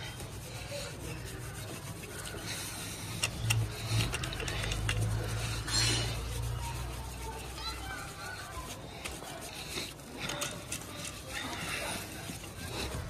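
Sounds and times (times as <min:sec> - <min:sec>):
cloth scrubbing metal pipe: 0:00.0 - 0:13.0
sharp clicks: 0:03.0 - 0:05.0.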